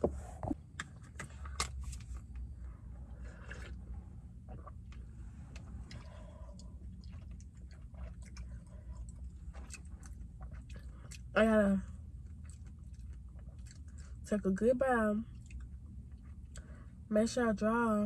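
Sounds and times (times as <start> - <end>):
chewing fruit: 3.1 - 14.3, 15.2 - 17.0.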